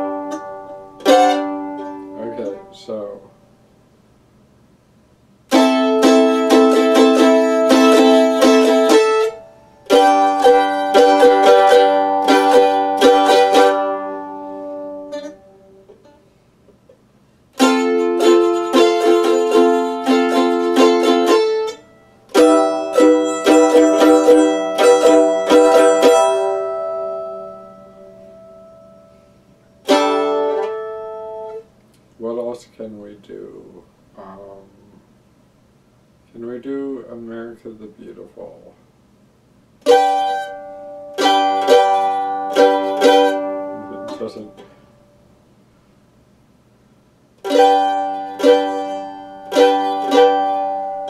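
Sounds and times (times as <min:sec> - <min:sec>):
mandolin strummed chords: 0:00.0 - 0:03.4, 0:05.5 - 0:16.3, 0:17.6 - 0:31.7, 0:39.8 - 0:45.3, 0:47.4 - 0:51.0.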